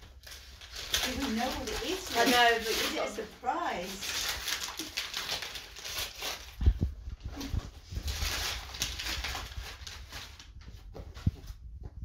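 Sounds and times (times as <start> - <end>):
tissue paper rustling: 0.0 - 11.6.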